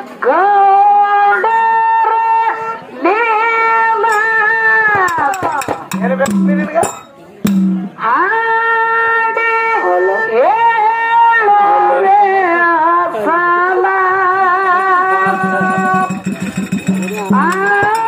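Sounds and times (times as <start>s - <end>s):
woman singing into a microphone: 0.0s - 5.3s, 8.0s - 15.9s
sharp hits: 5.0s - 8.0s.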